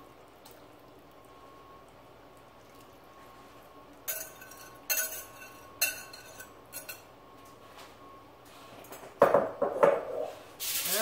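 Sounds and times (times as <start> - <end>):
whisk clinking on glass bowl: 4.1 - 7.1.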